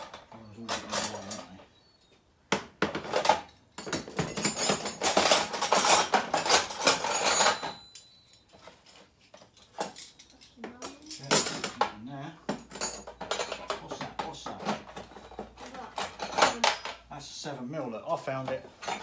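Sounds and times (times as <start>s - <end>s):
metal tools clinking and rattling: 0.0s - 1.7s, 2.8s - 17.1s, 18.2s - 19.0s.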